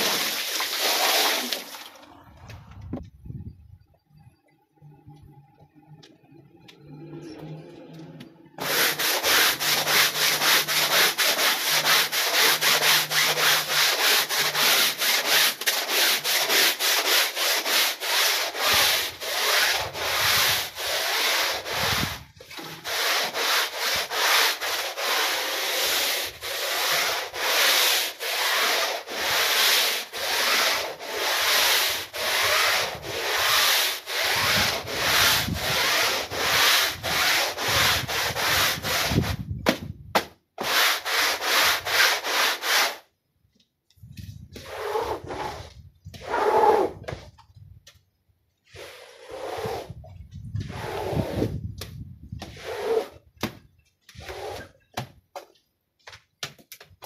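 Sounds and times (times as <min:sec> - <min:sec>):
brush scrubbing wet rug: 0:00.0 - 0:01.8, 0:08.6 - 0:39.5, 0:40.6 - 0:43.0, 0:44.5 - 0:46.3, 0:48.7 - 0:51.7, 0:52.4 - 0:53.2.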